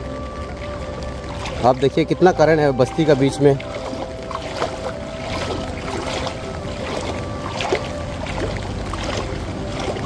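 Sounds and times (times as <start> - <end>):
floodwater rushing: 0.0 - 10.0.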